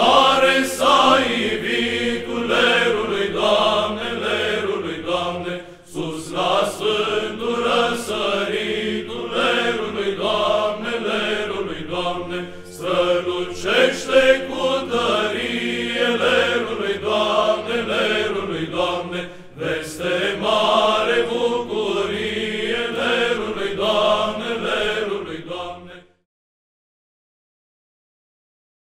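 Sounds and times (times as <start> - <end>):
low sustained vocal drone: 0.0 - 25.8
male choir chanting in unison: 0.0 - 26.2.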